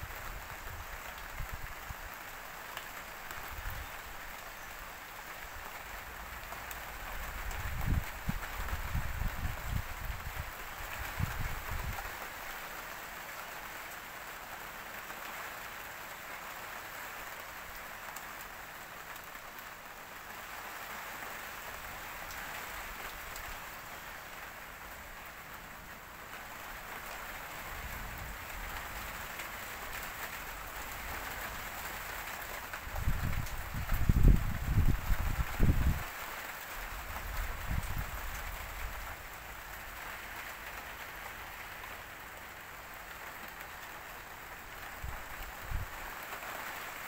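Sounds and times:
rain hissing: 0.0 - 47.0
wind buffeting microphone: 7.5 - 12.0, 32.9 - 36.1.

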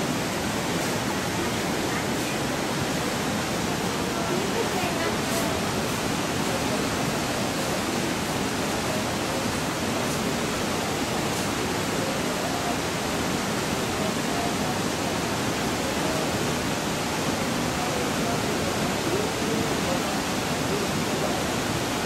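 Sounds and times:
fast-flowing river rushing: 0.0 - 22.0.

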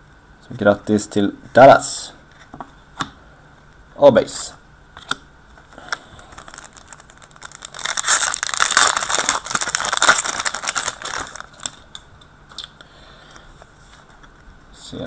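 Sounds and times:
foil wrapper crinkling: 5.8 - 12.0.

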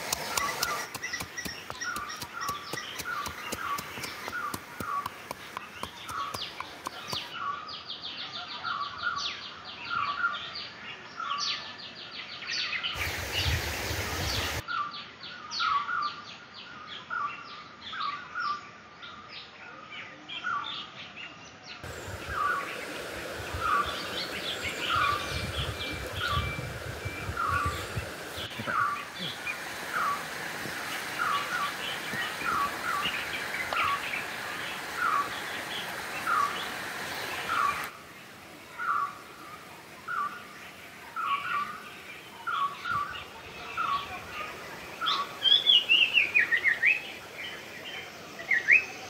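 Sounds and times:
high bird chirps: 0.0 - 7.5.

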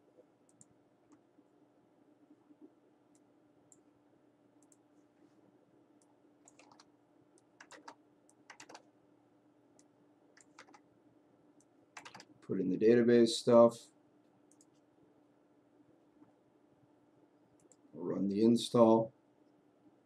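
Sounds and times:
faint steady hum: 0.0 - 20.0
keyboard typing: 6.4 - 8.9, 10.4 - 10.9, 12.0 - 12.4, 14.5 - 14.8.

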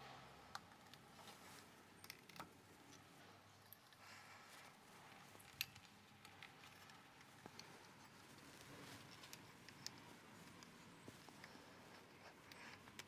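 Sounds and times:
cork and wire cage handling clicks: 2.0 - 4.1, 5.1 - 13.0.

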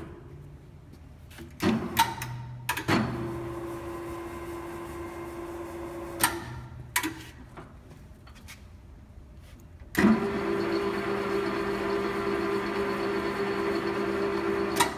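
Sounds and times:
lathe gear-train hum: 9.9 - 14.9.

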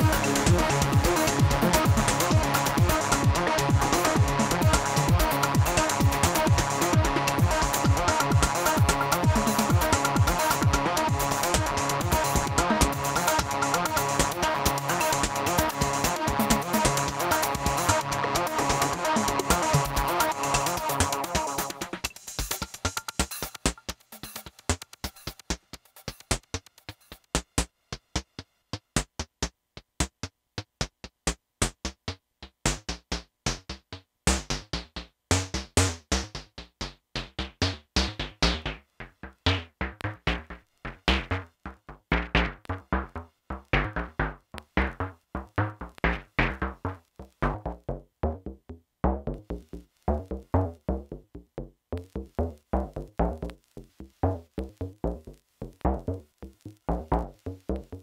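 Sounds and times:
drum machine percussion: 0.0 - 58.0
deep kick drum: 32.7 - 58.0.

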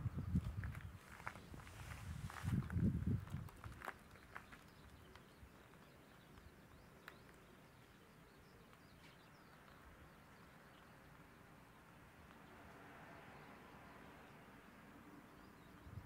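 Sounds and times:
distant birds chirping: 3.2 - 16.0.

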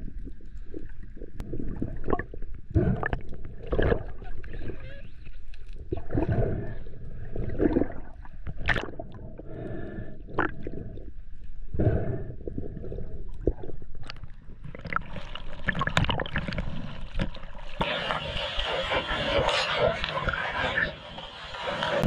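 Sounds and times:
bubbles crackling and splashing: 0.0 - 9.4, 10.2 - 10.9, 12.4 - 21.0
underwater gurgling and bubbling: 0.0 - 11.2, 11.8 - 22.0
underwater clicks and knocks: 13.5 - 17.4.

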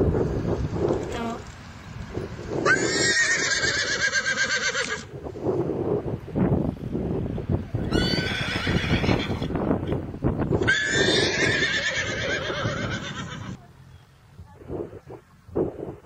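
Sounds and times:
horse whinnying: 2.6 - 5.1, 7.8 - 9.5, 10.6 - 13.6.

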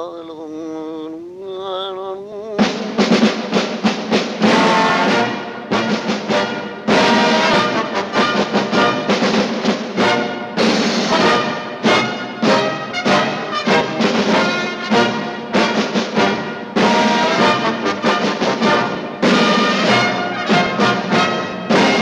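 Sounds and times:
sharp percussion hits: 2.6 - 22.0
loud held brass chords: 4.4 - 22.0.

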